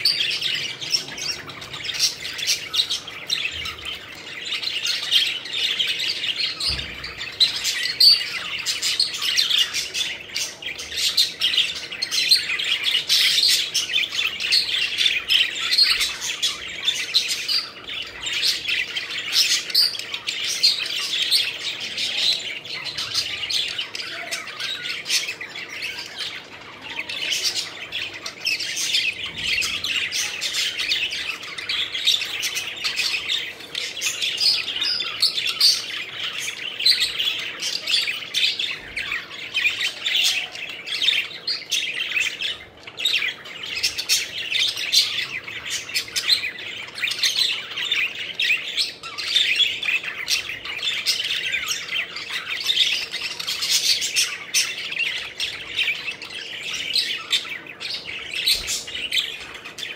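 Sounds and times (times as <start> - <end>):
budgerigars chirping: 0.0 - 59.9.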